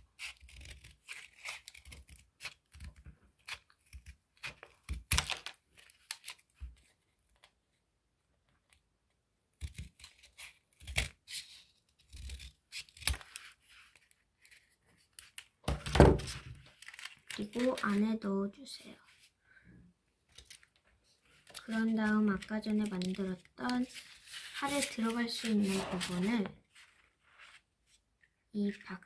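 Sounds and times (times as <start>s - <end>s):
scissors snipping paper: 0.1s - 6.5s, 9.5s - 15.5s, 16.2s - 18.0s, 21.4s - 26.5s.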